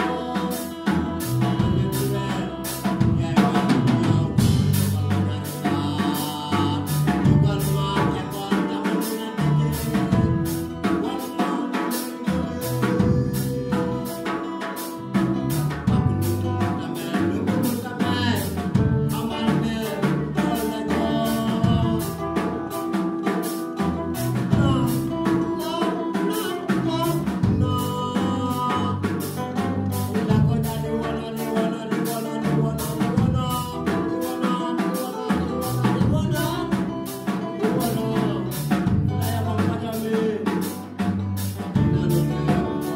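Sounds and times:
live band playing: 0.0 - 42.9
man singing into a microphone: 0.0 - 42.9.

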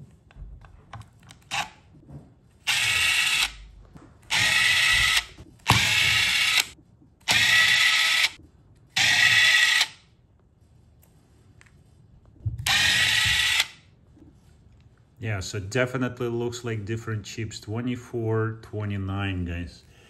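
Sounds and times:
cordless driver whirring: 2.7 - 3.6, 4.3 - 8.4, 9.0 - 9.9, 12.6 - 13.8.

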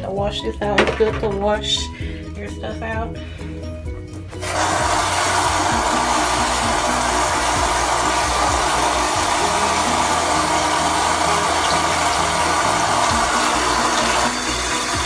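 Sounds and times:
tap water running into sink: 4.4 - 15.0.

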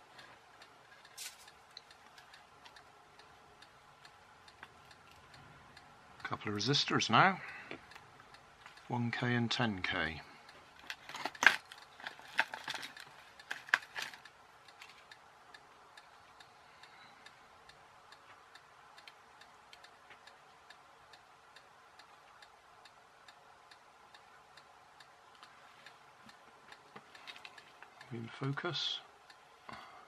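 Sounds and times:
sharp clicks of wire leads: 0.0 - 3.3, 10.5 - 15.2
faint steady ticking: 0.0 - 30.0.

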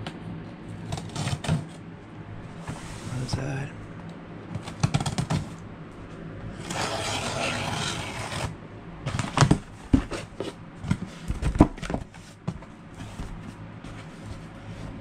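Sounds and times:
cardboard handling clicks and knocks: 4.6 - 5.6, 9.1 - 14.6
fingernail scratching tape: 6.6 - 8.5.

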